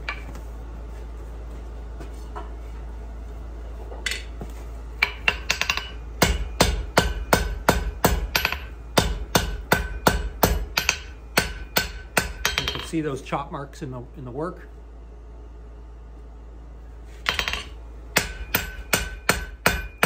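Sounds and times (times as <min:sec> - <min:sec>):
hammer striking metal on anvil: 0:05.0 - 0:13.0, 0:17.3 - 0:20.0.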